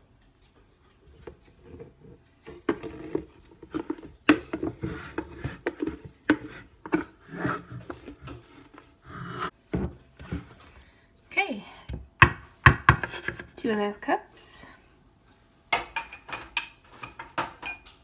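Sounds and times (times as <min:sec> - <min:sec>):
utensils scraping wooden bowl: 0:01.6 - 0:09.5.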